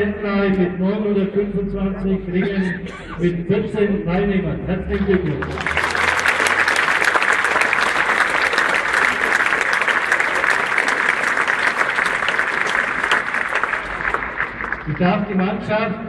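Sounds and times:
crowd applauding: 4.9s - 15.6s.

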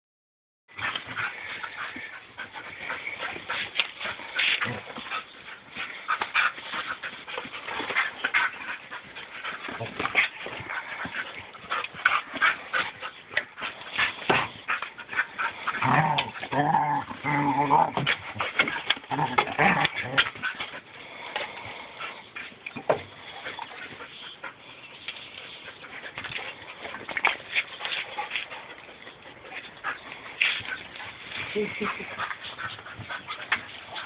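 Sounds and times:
low dog vocal sound: 0.8s - 34.0s
dogs scuffling: 25.0s - 34.0s.

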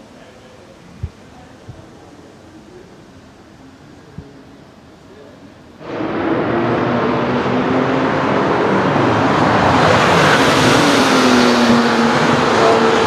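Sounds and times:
race car engines running hard: 5.8s - 13.0s.

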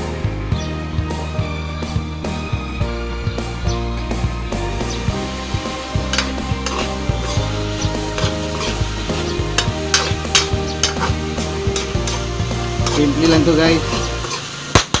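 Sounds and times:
background music: 0.0s - 15.0s
food sizzling: 0.0s - 15.0s
metal spatula scraping a wok: 4.7s - 15.0s.

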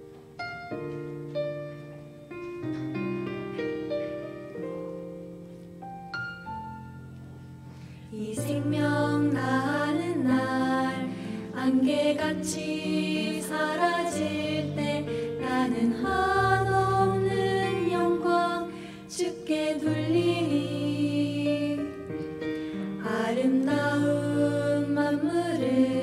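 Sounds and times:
women singing gospel song: 8.1s - 22.0s, 23.0s - 26.0s.

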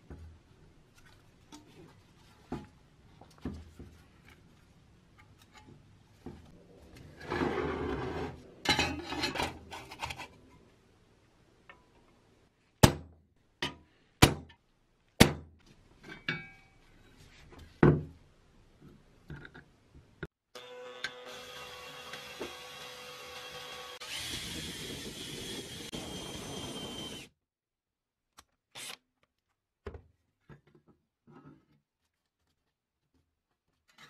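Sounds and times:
scraping and handling noise: 0.0s - 10.8s, 30.3s - 34.0s.

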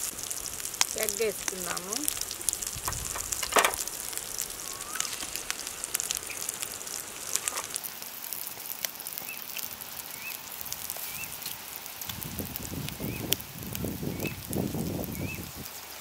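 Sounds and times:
onions sizzling in oil: 0.0s - 16.0s.

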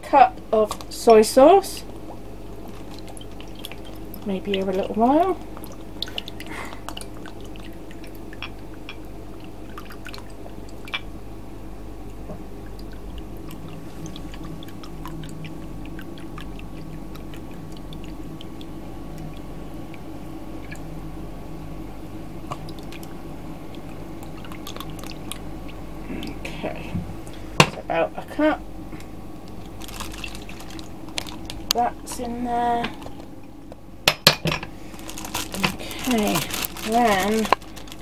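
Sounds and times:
steady low hum: 0.0s - 38.0s
small drips: 2.0s - 11.1s, 12.0s - 20.9s, 22.4s - 26.5s, 29.4s - 32.3s
liquid pouring into plastic bag: 2.6s - 8.0s, 24.2s - 25.4s, 29.6s - 32.2s, 34.8s - 38.0s.

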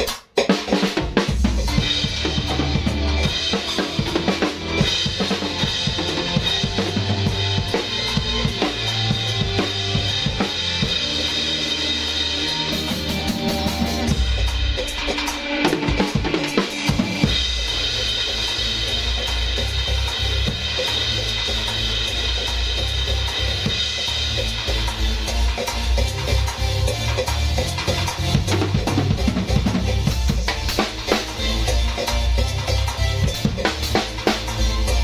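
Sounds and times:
drum kit playing groove: 0.0s - 35.0s
backing track bass notes: 0.8s - 35.0s.

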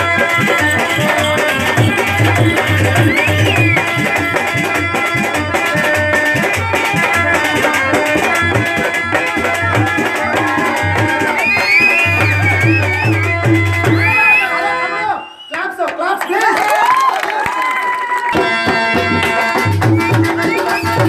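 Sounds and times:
melody with sliding notes: 0.0s - 5.2s
hand drums beating: 0.0s - 14.2s, 18.3s - 21.0s.

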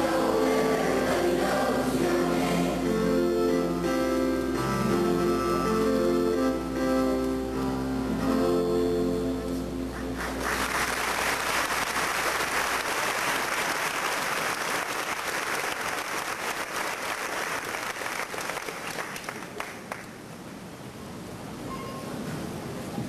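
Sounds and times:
audience applauding: 9.9s - 20.2s.

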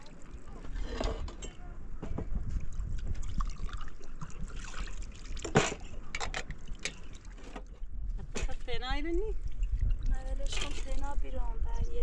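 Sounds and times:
water trickling: 2.5s - 7.6s, 8.6s - 11.5s.

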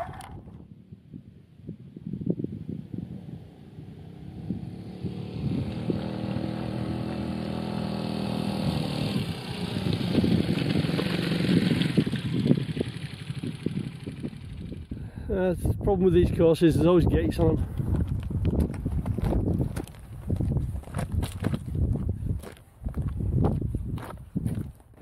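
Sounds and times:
motorcycle engine under load: 3.1s - 15.3s.

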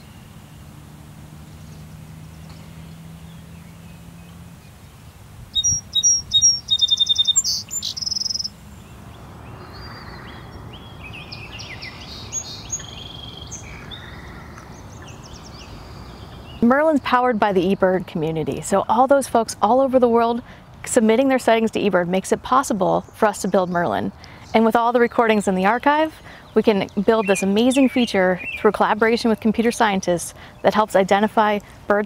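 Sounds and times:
other birds singing: 0.0s - 18.3s, 22.9s - 31.8s
sparrow singing: 5.5s - 18.4s, 22.9s - 31.6s.

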